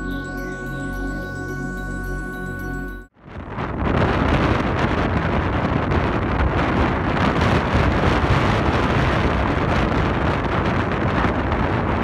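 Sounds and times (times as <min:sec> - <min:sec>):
wind buffeting microphone: 0:03.2 - 0:12.0.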